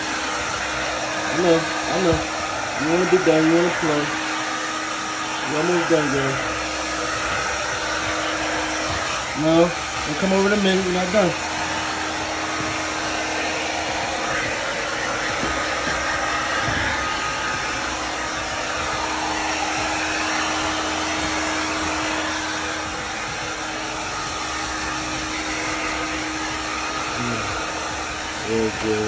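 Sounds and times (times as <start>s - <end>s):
hair dryer running: 0.0s - 29.0s.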